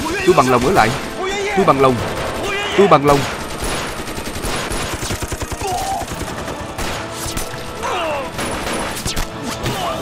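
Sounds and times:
rifle and machine gun fire: 0.8 - 7.2, 8.3 - 9.1.

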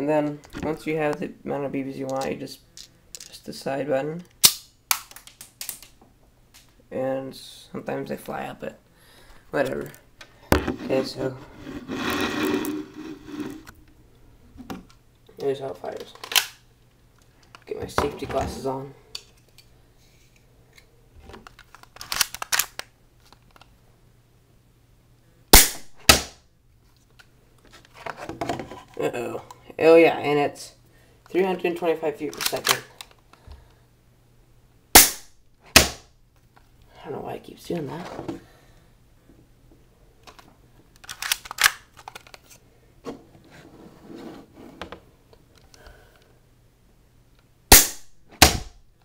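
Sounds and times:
airsoft pistol shot crack: 25.6 - 26.4, 35.0 - 36.0, 47.7 - 48.8
sharp snap: 25.6 - 26.4, 35.0 - 36.1, 47.7 - 48.8.

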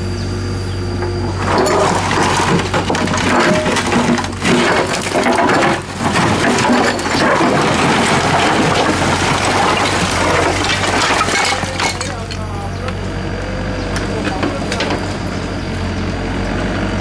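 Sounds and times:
diesel engine humming: 0.0 - 17.0
excavator bucket scraping paving: 0.7 - 16.9
rubble crunching and clattering: 1.0 - 13.0, 13.9 - 15.5.

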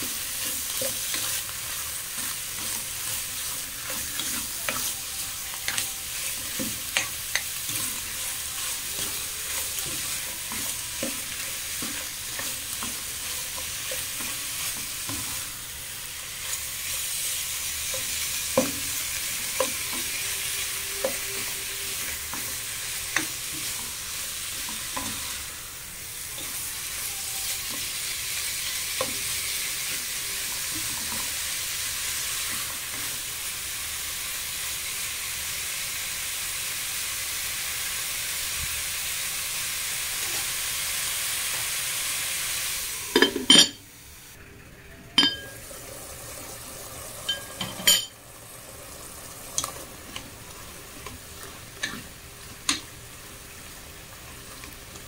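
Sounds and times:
spatula stirring: 0.0 - 25.5
chicken and onions sizzling in pot: 0.0 - 55.0.

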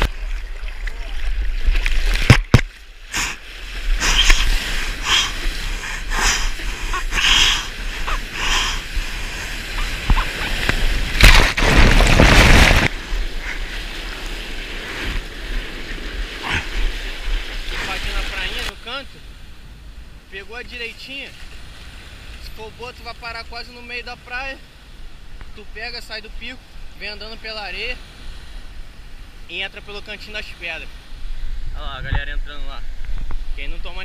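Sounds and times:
water splashing from paddling: 0.0 - 18.8
whitewater rushing: 0.0 - 19.0.

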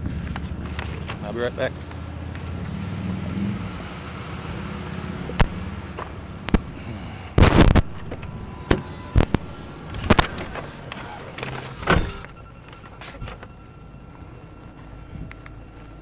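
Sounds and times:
low vehicle rumble: 0.0 - 16.0.

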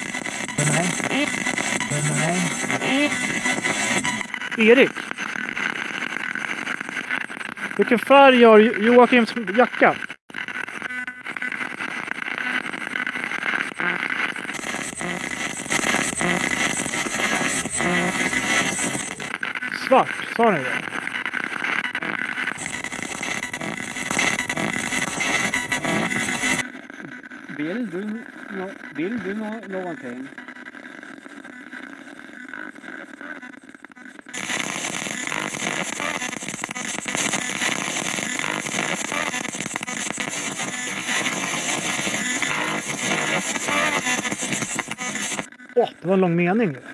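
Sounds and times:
short snatches of radio sound: 0.0 - 30.6, 34.3 - 45.5
fast clicks: 0.0 - 45.7
radio static hiss: 0.0 - 46.9.

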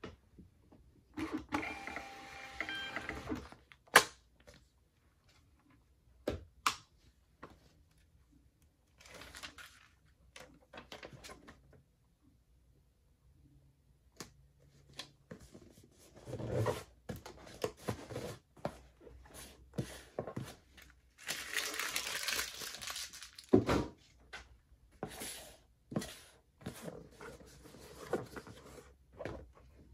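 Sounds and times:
paper crinkling and rustling: 8.9 - 11.6, 20.4 - 23.7.

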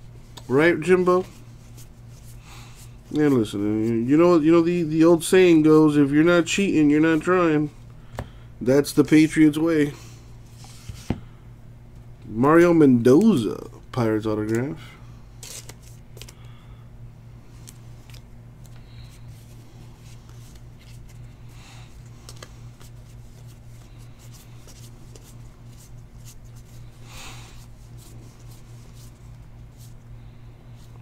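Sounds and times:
steady low hum: 0.0 - 31.0
trading cards flipping and snapping: 14.4 - 14.7, 15.4 - 16.5, 17.6 - 18.8, 22.0 - 26.7.

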